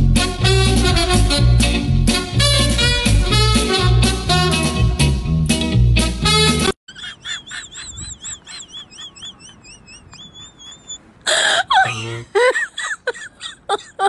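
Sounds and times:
person wailing: 11.3s - 12.4s.

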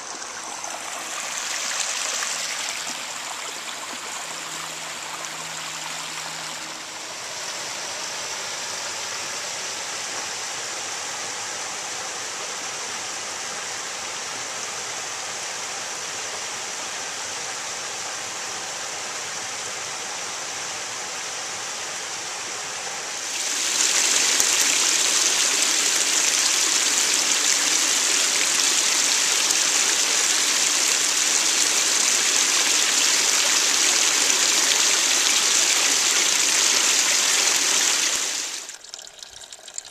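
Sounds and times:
creek water rushing over stones: 0.0s - 13.8s, 23.2s - 39.9s.

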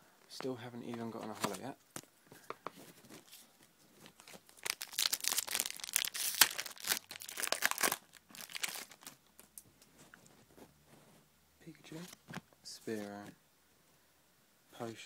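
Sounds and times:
foil wrapper tearing and crinkling: 4.2s - 9.4s.

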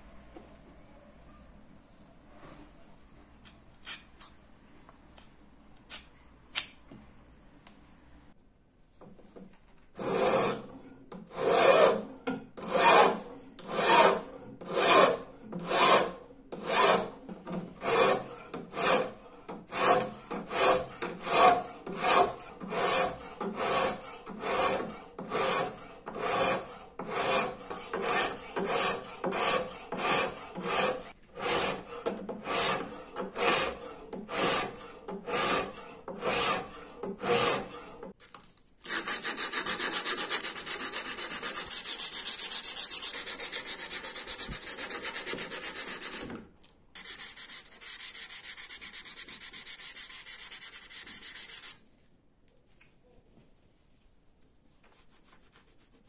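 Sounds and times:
hand file rasping on knife blade: 10.0s - 17.2s, 17.8s - 38.1s, 38.9s - 46.3s.

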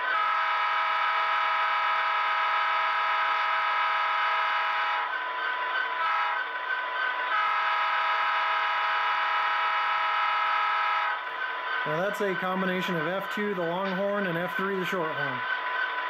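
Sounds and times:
model train horn from small speaker: 0.0s - 5.1s, 6.0s - 6.6s, 7.3s - 11.2s.

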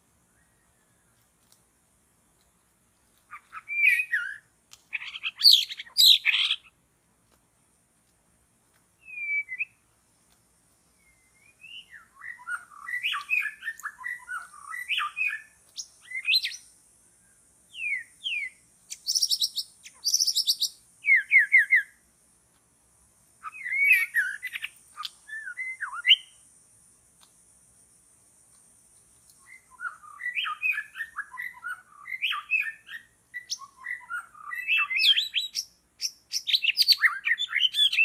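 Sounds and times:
faint high hiss: 0.0s - 38.0s
bird singing whistled phrases: 3.3s - 6.7s, 9.0s - 9.8s, 11.0s - 16.6s, 17.7s - 22.0s, 23.4s - 26.4s, 29.4s - 38.0s.

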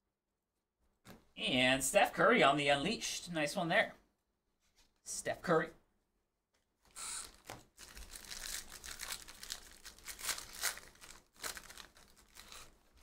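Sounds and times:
foil wrapper tearing and crinkling: 7.2s - 13.0s.

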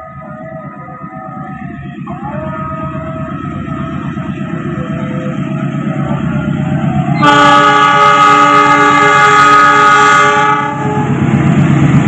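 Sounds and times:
diesel engine low throb: 0.0s - 12.0s
locomotive horn: 7.2s - 11.2s.

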